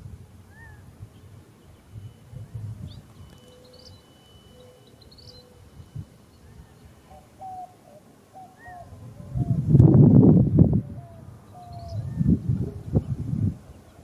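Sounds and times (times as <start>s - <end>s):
birdsong: 0.4s - 9.7s, 10.7s - 14.0s
high bird whistle: 1.6s - 6.9s.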